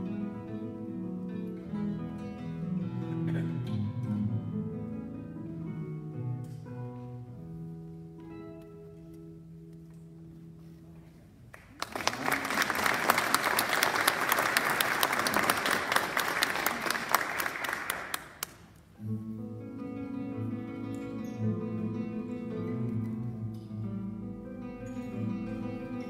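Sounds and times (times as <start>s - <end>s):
classical guitar playing: 0.0s - 11.0s, 18.8s - 26.0s
audience applauding: 11.5s - 18.7s.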